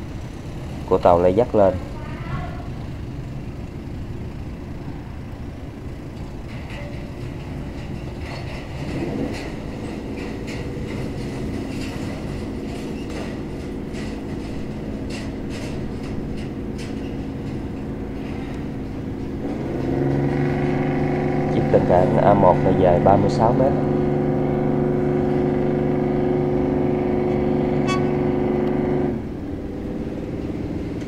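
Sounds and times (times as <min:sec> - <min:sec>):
engine running: 0:00.0 - 0:31.0
light clicks and clanks: 0:06.1 - 0:20.3.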